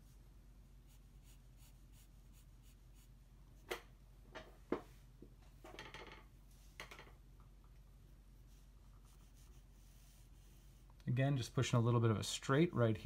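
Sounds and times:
pencil scratching on paper: 0.8 - 3.2, 8.6 - 10.8.

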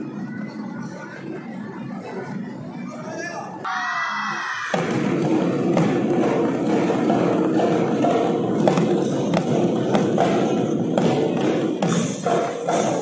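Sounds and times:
barrel drums rolling beat: 4.6 - 13.0.

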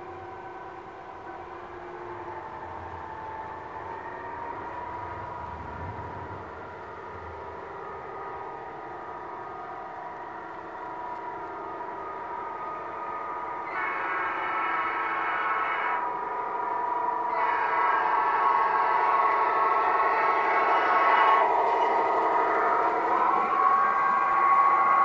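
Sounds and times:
diesel engine drone: 0.0 - 25.0
locomotive horn: 13.5 - 16.2, 17.2 - 25.0.

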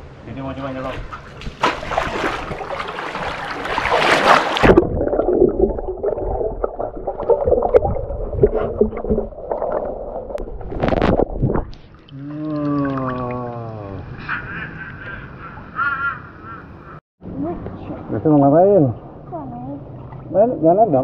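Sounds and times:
water splashing: 0.8 - 13.9
underwater gurgling and bubbling: 4.6 - 11.7.

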